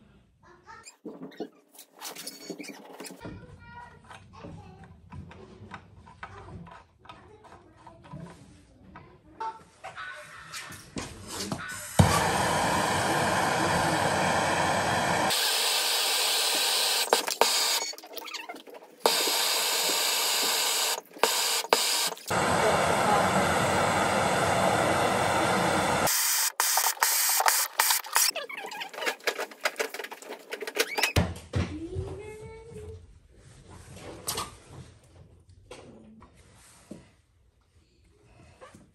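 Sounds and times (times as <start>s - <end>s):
gas torch hissing: 11.8s - 17.9s, 19.0s - 28.3s.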